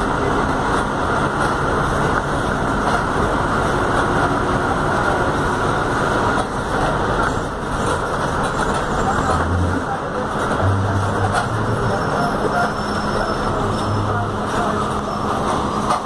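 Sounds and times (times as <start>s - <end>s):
bus engine and road noise: 0.0s - 16.0s.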